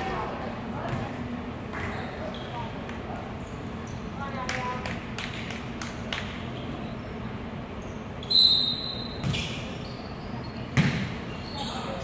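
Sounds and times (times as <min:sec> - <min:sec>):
volleyball bouncing on gym floor: 0:00.8 - 0:01.9, 0:10.7 - 0:11.2
referee's whistle: 0:08.2 - 0:09.3.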